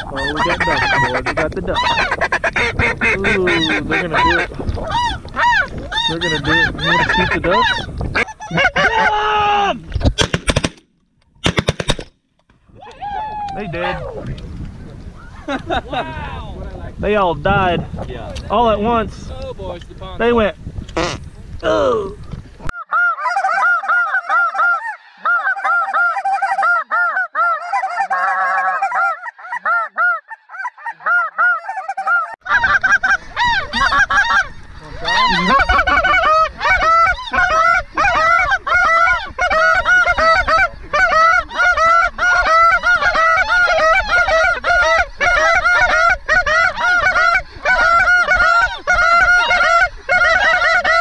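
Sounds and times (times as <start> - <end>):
geese honking: 0.0 - 9.2, 22.8 - 51.0.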